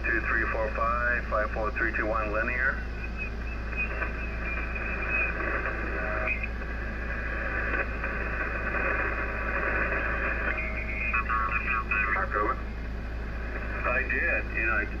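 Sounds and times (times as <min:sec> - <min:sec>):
radio static hiss: 0:00.0 - 0:15.0
faint radio whistles: 0:02.5 - 0:06.6, 0:08.7 - 0:11.7.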